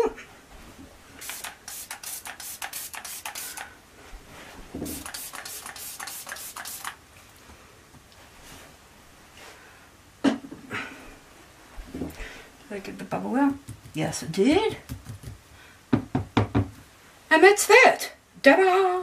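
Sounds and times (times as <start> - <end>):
spray bottle spritzing: 1.2 - 3.7, 4.8 - 7.0.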